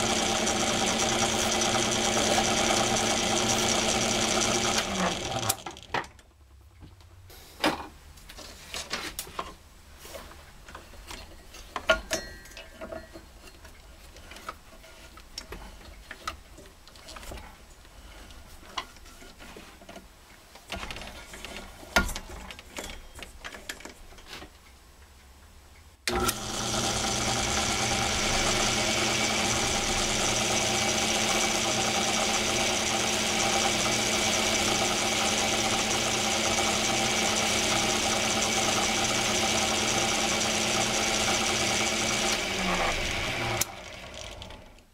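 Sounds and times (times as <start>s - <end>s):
small lathe humming: 0.0s - 5.9s, 26.1s - 44.8s
clicks and knocks of handling: 18.3s - 25.3s.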